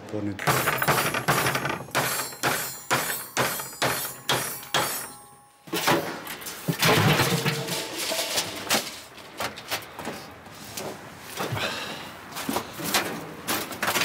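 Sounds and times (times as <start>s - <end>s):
hammer striking metal: 0.4s - 6.2s
metal clattering: 0.4s - 9.2s.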